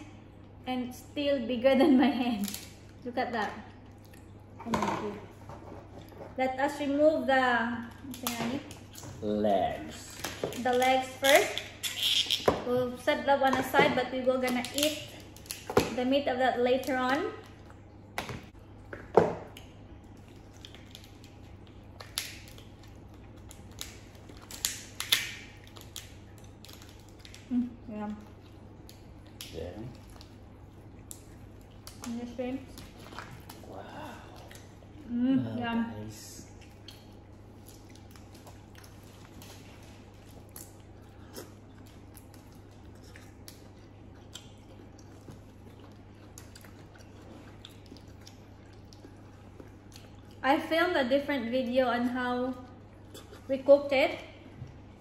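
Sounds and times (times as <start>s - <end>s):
steady low hum: 0.0s - 55.0s
wet chewing: 3.6s - 4.7s, 16.6s - 35.1s, 36.4s - 51.8s, 52.4s - 55.0s
shells cracking by hand: 23.8s - 27.4s.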